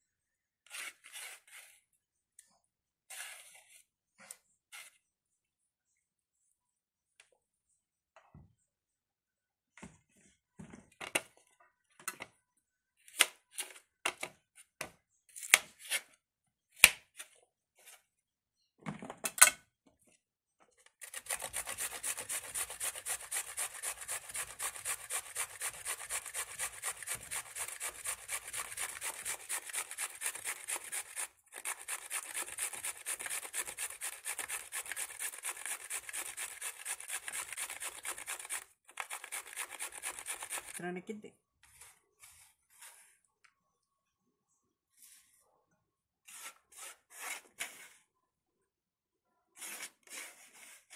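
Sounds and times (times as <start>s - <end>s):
vegetable grating on metal grater: 21.0s - 40.8s.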